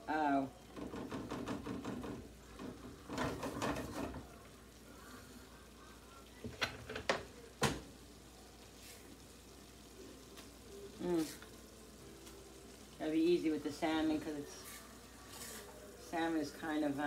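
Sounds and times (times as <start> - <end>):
wooden spatula scraping a pan: 0.8 - 4.3, 14.5 - 16.6.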